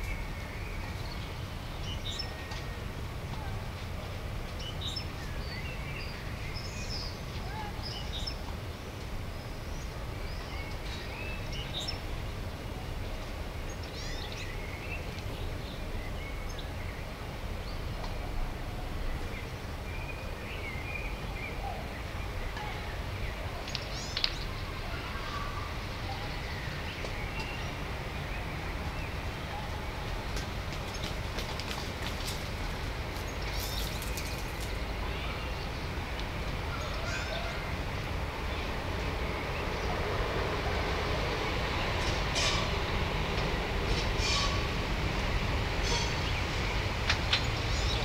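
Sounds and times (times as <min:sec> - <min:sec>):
small birds chirping: 0:19.0 - 0:40.1, 0:45.8 - 0:48.0.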